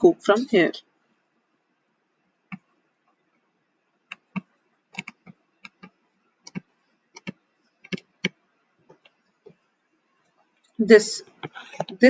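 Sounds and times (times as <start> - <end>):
light clicks and taps on screen: 2.5 - 3.2, 4.1 - 9.6.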